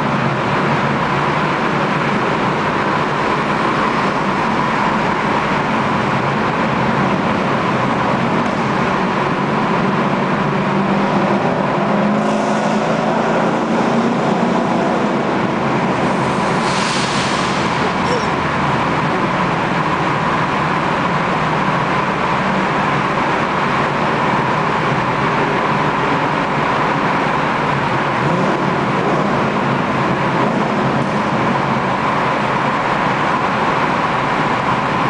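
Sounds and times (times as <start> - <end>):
car engine cruising: 0.0 - 35.0
hiss: 16.6 - 17.7.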